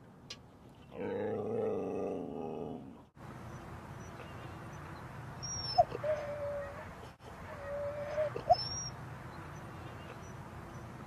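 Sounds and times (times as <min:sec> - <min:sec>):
dog whining: 0:05.4 - 0:06.8, 0:07.6 - 0:08.9.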